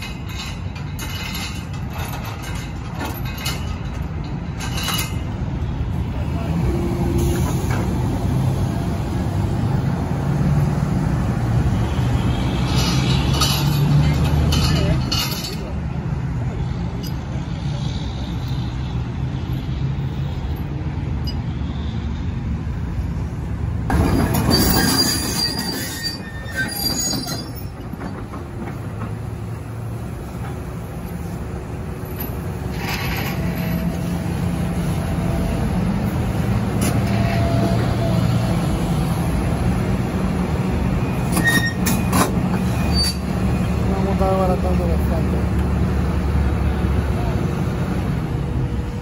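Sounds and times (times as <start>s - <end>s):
steel tracks squealing: 11.6s - 15.7s, 23.9s - 31.4s, 32.0s - 45.0s.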